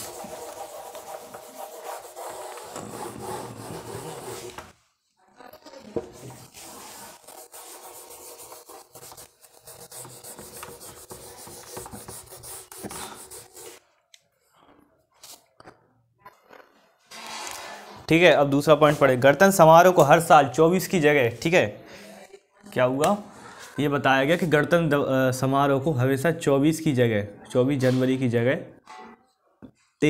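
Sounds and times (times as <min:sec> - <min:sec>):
eraser scrubbing whiteboard: 0:00.0 - 0:04.7, 0:06.0 - 0:13.8.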